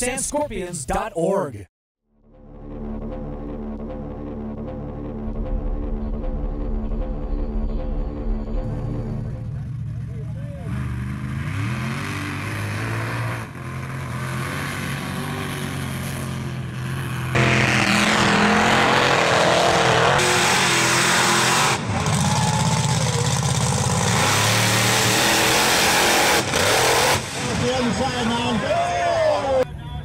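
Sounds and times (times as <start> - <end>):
truck engines revving: 2.8 - 29.7
tires spinning through mud: 17.3 - 29.6.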